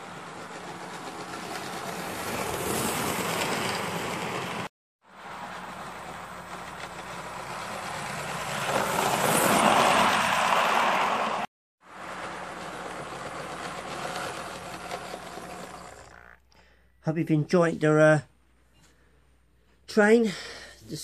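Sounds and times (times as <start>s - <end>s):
model locomotive running on track: 0.0s - 9.4s, 11.9s - 16.2s
model train passing: 0.0s - 16.3s.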